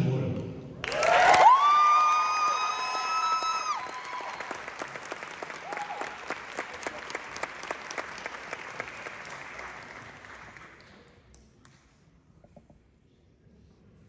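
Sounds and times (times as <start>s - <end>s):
audience applauding: 0.8s - 11.1s.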